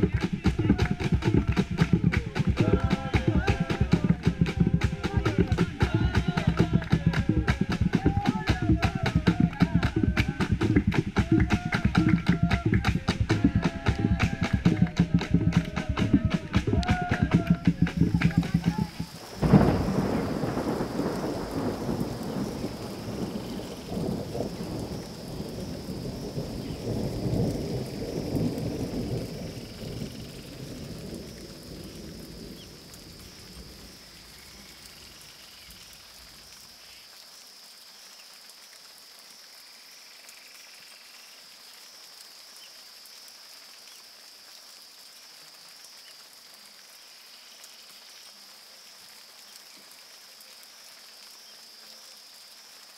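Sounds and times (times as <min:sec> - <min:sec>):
thunder rumbling: 0:00.0 - 0:33.9
steady rain: 0:00.0 - 0:52.9.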